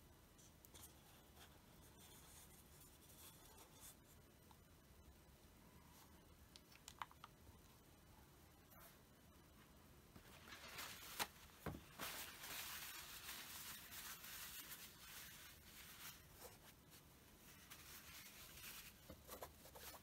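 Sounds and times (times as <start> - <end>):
paper tissue rustling: 10.1 - 20.0.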